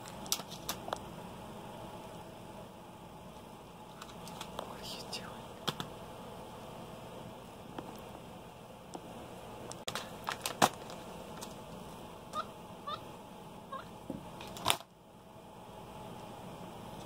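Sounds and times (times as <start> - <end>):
monkey chirping: 12.4 - 13.0, 13.7 - 13.9.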